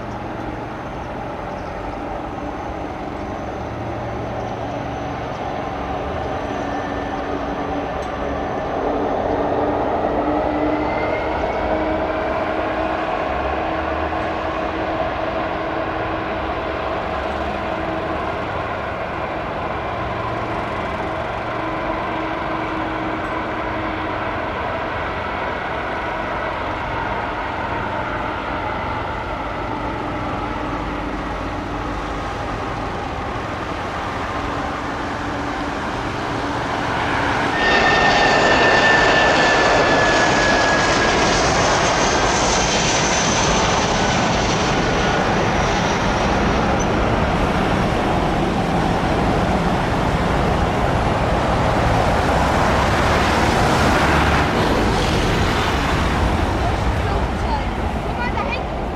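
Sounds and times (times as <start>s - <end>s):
jet engines running: 0.0s - 58.9s
high whine falling in pitch: 34.8s - 57.6s.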